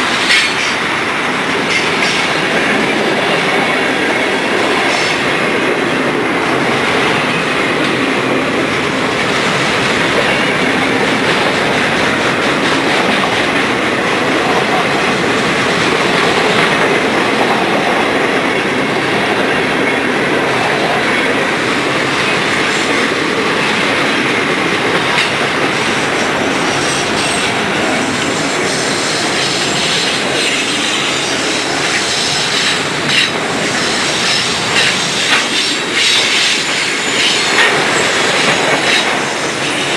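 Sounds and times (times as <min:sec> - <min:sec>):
steel wheels rolling on rail: 0:00.0 - 0:39.9.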